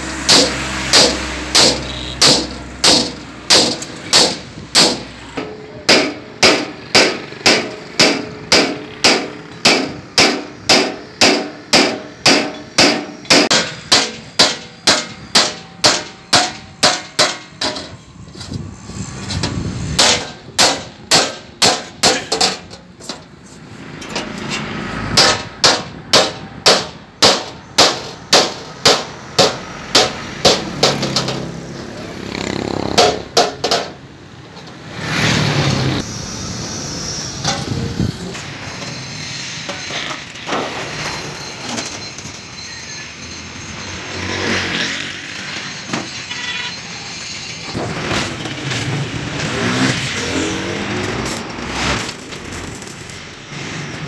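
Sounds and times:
hammer striking steel sheet: 0:00.0 - 0:18.0, 0:19.4 - 0:23.2, 0:24.0 - 0:31.4, 0:33.0 - 0:34.0
steady background noise: 0:00.0 - 0:54.0.

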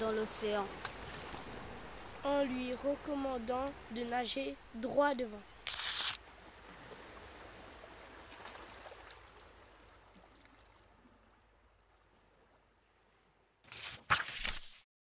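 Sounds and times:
faint rushing water: 0:00.0 - 0:14.6.

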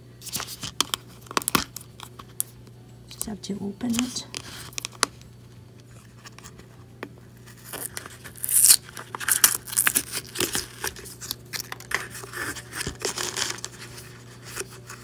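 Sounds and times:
crinkling and scratching: 0:00.2 - 0:03.3, 0:03.9 - 0:15.0
seal tearing off bottle: 0:07.6 - 0:13.7.

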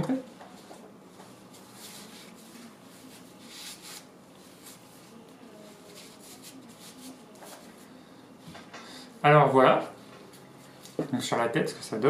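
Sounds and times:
fabric rustling and rubbing: 0:00.6 - 0:07.8.

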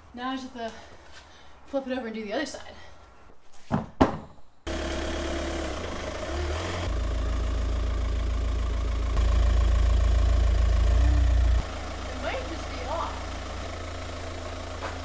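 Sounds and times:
car engine idling: 0:04.7 - 0:15.0.

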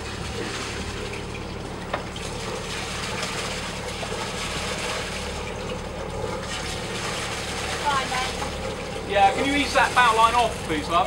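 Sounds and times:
boat engine idling: 0:00.0 - 0:11.0
water rushing: 0:00.0 - 0:11.0.

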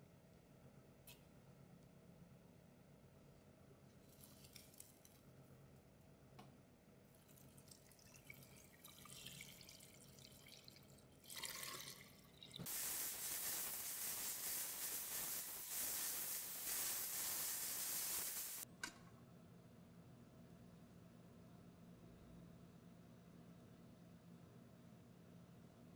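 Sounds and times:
water running into a pot: 0:07.2 - 0:18.6.

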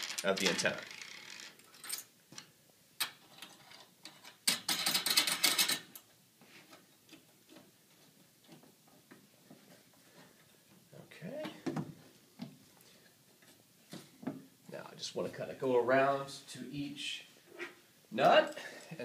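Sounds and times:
metal hardware clicking and rattling: 0:01.6 - 0:06.1.

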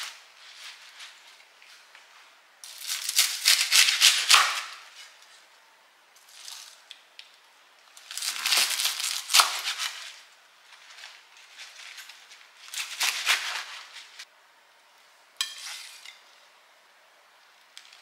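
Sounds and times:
rustling and crinkling: 0:00.0 - 0:05.5, 0:07.9 - 0:14.3.

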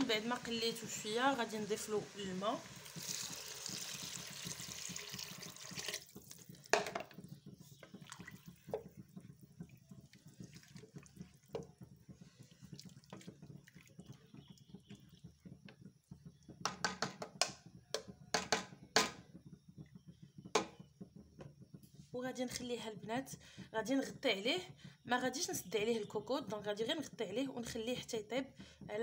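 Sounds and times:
water pouring into pot: 0:00.0 - 0:18.8
wooden spoon knocking pot: 0:02.9 - 0:19.4, 0:20.0 - 0:21.5.

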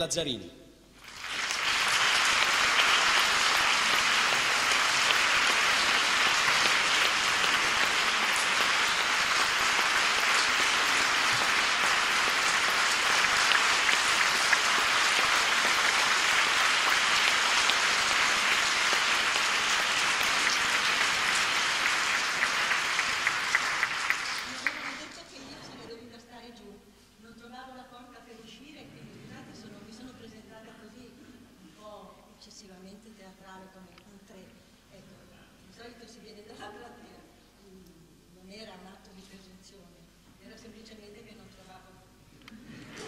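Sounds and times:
audience applauding: 0:01.0 - 0:25.3, 0:42.8 - 0:43.0.

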